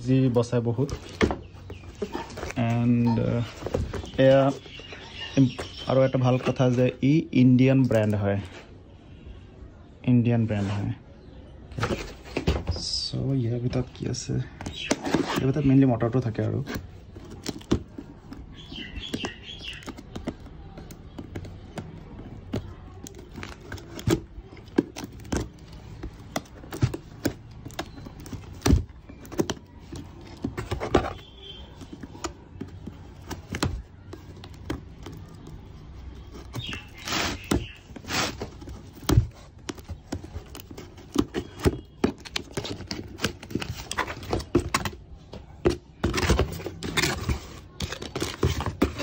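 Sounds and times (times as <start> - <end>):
cardboard knocks and scrapes: 0.4 - 6.8, 11.7 - 13.0, 14.5 - 49.0
box flap scraping open: 36.3 - 45.0.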